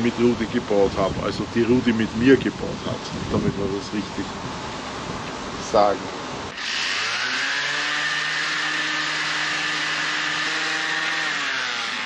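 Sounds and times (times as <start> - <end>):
electric sander motor whine: 6.5 - 12.0
sanding wood rasp: 6.6 - 12.0.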